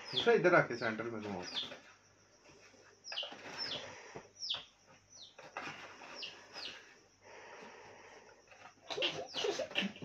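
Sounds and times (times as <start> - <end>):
bird chirping: 0.0 - 7.0, 8.6 - 10.0.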